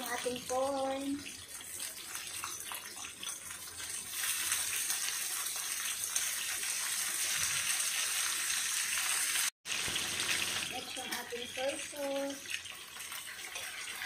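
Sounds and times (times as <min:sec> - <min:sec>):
food sizzling in a frying pan: 0:00.0 - 0:14.0.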